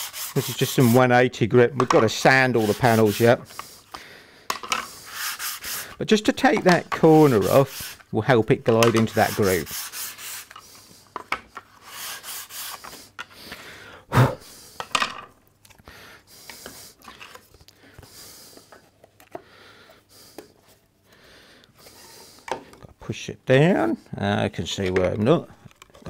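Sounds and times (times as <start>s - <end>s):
sandpaper rasping on wood: 0.0s - 1.1s, 2.2s - 3.5s, 4.9s - 6.0s, 7.0s - 8.0s, 9.0s - 10.6s, 11.7s - 13.0s.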